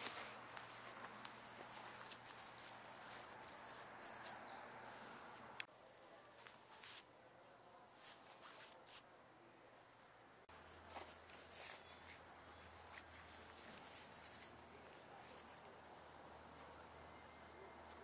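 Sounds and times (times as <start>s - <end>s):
faint rustles and clicks: 0.0s - 7.1s, 10.5s - 15.6s.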